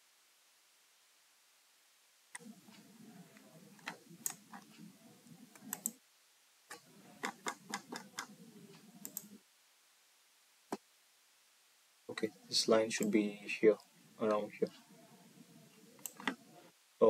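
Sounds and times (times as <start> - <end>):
mouse and keyboard clicking: 2.4 - 4.9, 5.5 - 6.0, 6.7 - 9.4, 16.0 - 16.4.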